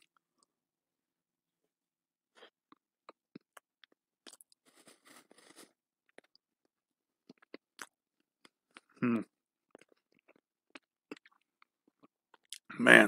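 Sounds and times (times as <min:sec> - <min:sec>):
faint chewing and mouth clicks: 0:02.4 - 0:12.7.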